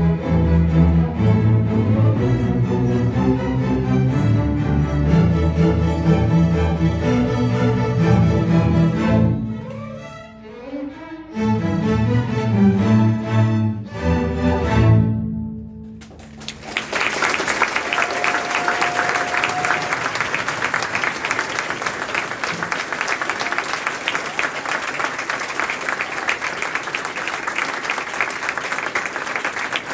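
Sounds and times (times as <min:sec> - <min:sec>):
audience applauding: 0:16.1 - 0:29.9.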